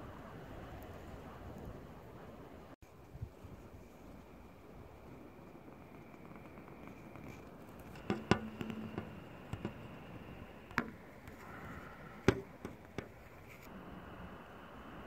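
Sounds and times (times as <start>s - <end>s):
steady wind rush: 0.0s - 15.0s
sharp knocks and taps: 7.2s - 11.4s, 12.2s - 13.3s.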